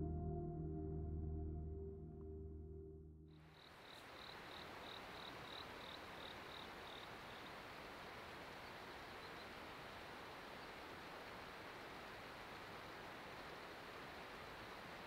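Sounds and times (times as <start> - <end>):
faint outdoor hiss: 3.4 - 15.0.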